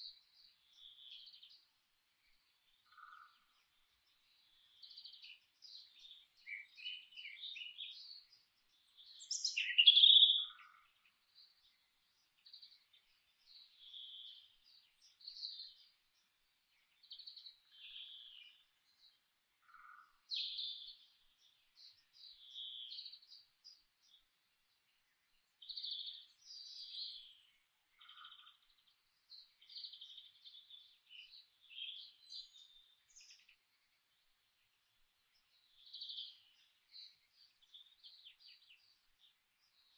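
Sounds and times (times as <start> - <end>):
birds chirping and singing: 2.3 - 24.3, 24.9 - 39.9.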